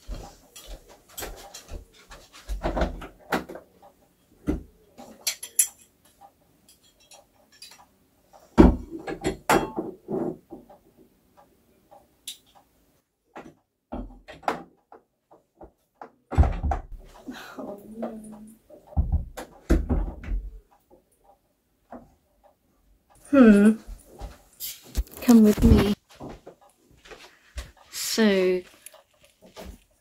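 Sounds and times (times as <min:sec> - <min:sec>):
hooks clattering against door: 0:05.0 - 0:05.9.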